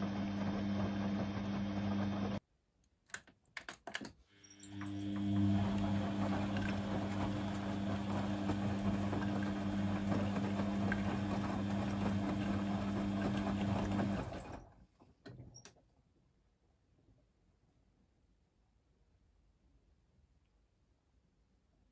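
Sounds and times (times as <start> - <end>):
washing machine motor hum: 0.0 - 2.4, 4.5 - 14.8.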